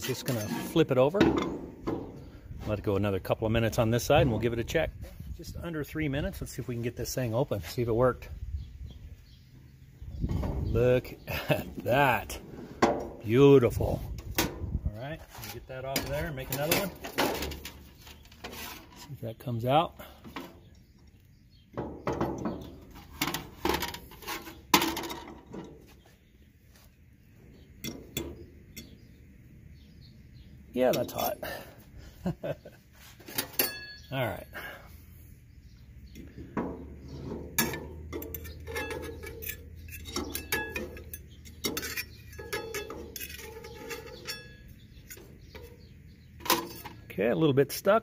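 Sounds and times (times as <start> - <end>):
metal fork scraping waffle iron: 0.0 - 1.0, 37.6 - 45.2
metal utensils scraping cast iron: 0.0 - 2.3, 15.2 - 19.2, 22.4 - 25.7, 37.0 - 47.1.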